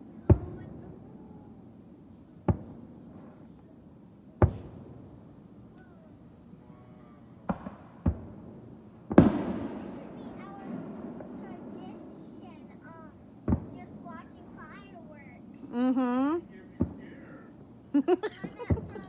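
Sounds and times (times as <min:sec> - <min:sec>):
fireworks bangs with echo: 0:00.0 - 0:01.1, 0:02.4 - 0:03.4, 0:04.4 - 0:05.2, 0:07.4 - 0:15.5, 0:16.5 - 0:17.6, 0:18.4 - 0:19.0.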